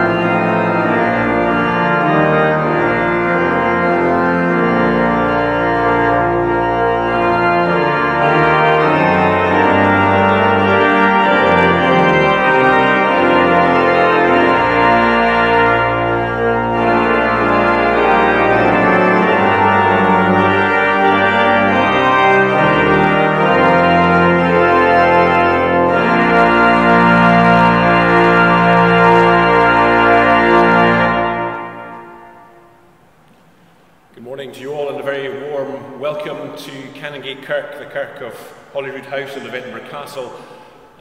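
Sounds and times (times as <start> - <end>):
pipe organ playing chords: 0.0 - 41.0.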